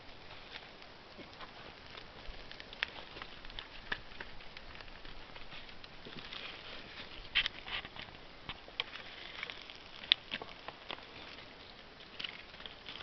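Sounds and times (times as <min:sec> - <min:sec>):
small fire crackling: 0:00.0 - 0:13.0.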